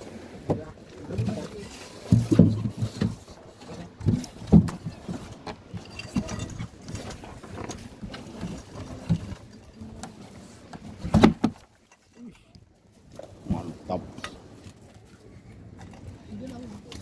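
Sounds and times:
fish and ice knocking and clattering: 0:00.4 - 0:12.4
loud thump against hull: 0:11.0 - 0:11.6.

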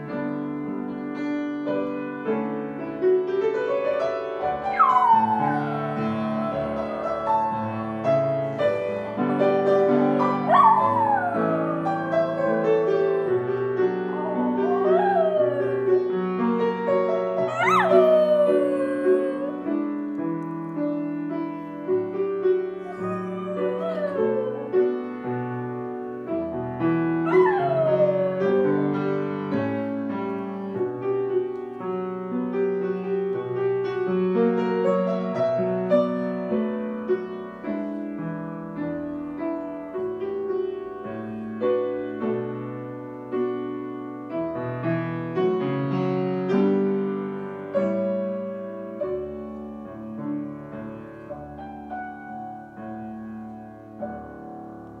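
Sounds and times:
slow piano melody: 0:00.0 - 0:55.0
dog howling: 0:04.6 - 0:16.2, 0:17.4 - 0:19.8, 0:22.8 - 0:25.0, 0:27.2 - 0:29.2.

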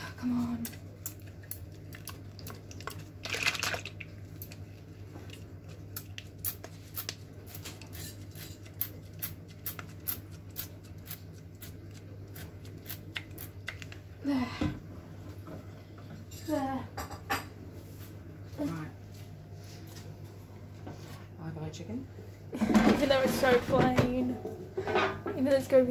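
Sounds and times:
low steady hum: 0:00.0 - 0:25.9.

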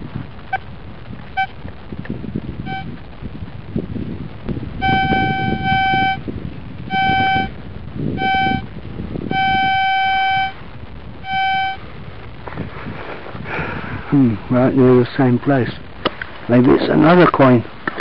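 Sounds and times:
metal detector beeps: 0:02.7 - 0:02.9, 0:04.8 - 0:06.2, 0:06.9 - 0:07.5, 0:08.2 - 0:08.6, 0:09.3 - 0:10.6, 0:11.3 - 0:11.8.

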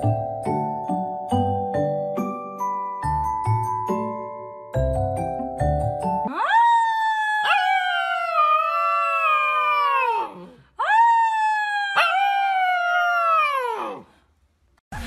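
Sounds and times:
dog howling: 0:06.3 - 0:14.0.

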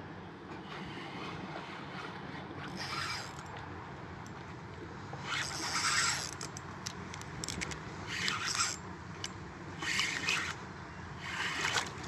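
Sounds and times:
fishing reel whirring: 0:02.6 - 0:03.5, 0:05.2 - 0:06.6, 0:07.4 - 0:10.6, 0:11.2 - 0:12.0.

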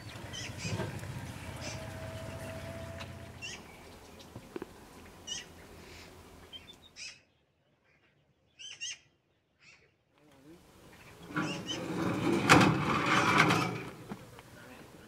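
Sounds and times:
bird chirps: 0:00.0 - 0:04.4, 0:05.2 - 0:10.0
faint outdoor background: 0:00.0 - 0:15.0.

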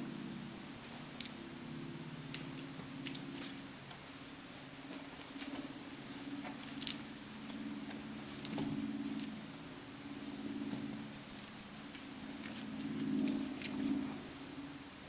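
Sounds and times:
steady low hum: 0:00.0 - 0:15.0
paws tapping and scuffling: 0:04.8 - 0:09.3, 0:10.6 - 0:14.1.

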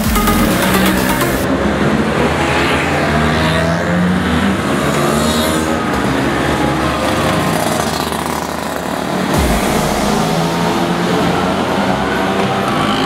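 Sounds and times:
scooters passing by: 0:01.5 - 0:09.4.

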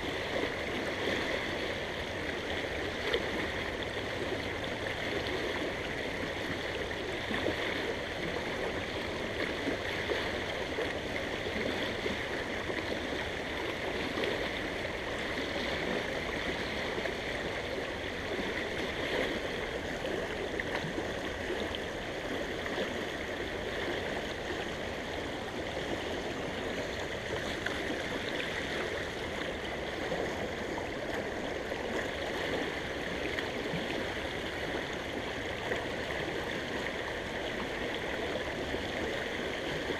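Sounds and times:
creek water rushing over rocks: 0:00.0 - 0:39.9.

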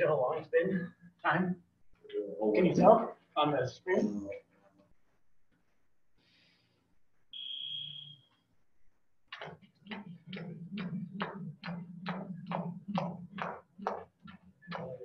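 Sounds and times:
jump rope slapping the floor: 0:09.3 - 0:15.0.

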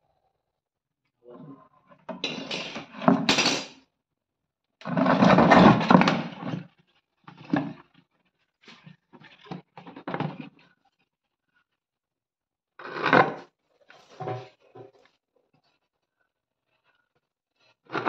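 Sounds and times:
plastic jar scraping on concrete: 0:12.8 - 0:15.1.

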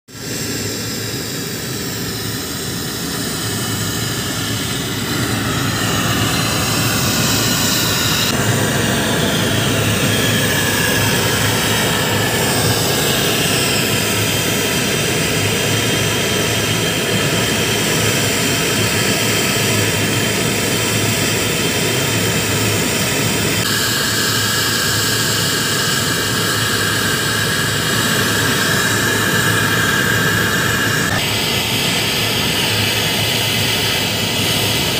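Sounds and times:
gas torch hissing: 0:00.2 - 0:14.8, 0:23.6 - 0:34.9.

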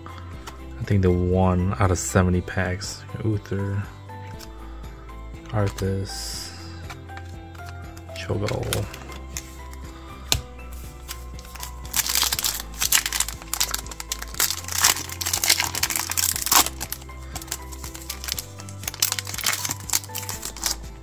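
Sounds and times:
background music: 0:00.0 - 0:21.0
foil wrapper crinkling and tearing: 0:11.0 - 0:21.0.

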